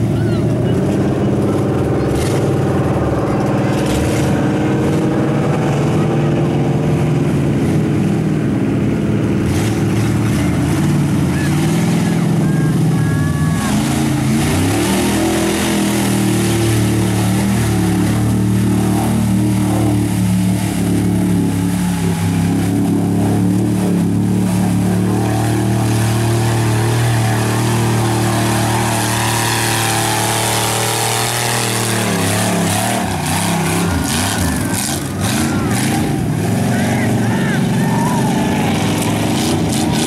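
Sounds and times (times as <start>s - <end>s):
pickup truck engine revving: 0.0s - 40.0s
mud spraying from tyres: 13.6s - 40.0s.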